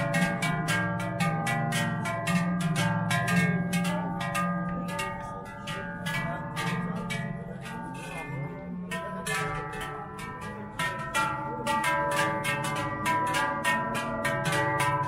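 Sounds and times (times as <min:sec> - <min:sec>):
large cowbells clanging: 0:00.0 - 0:15.0.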